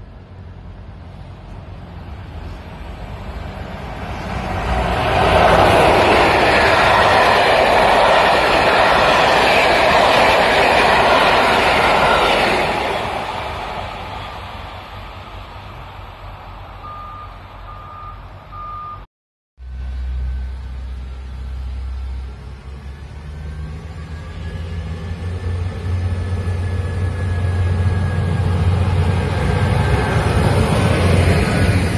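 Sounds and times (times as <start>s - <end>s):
passenger train passing at speed: 0.0s - 19.0s, 19.6s - 31.9s
reversing alarm beeps: 16.8s - 19.1s.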